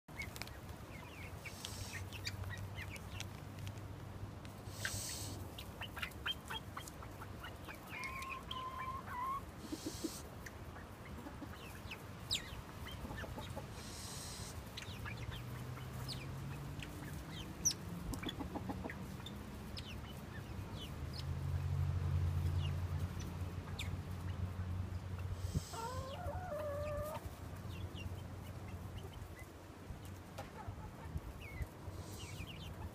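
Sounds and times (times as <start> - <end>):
pheasants clucking: 0.1 - 32.9
short wavering bird calls: 4.7 - 6.6, 13.8 - 15.4.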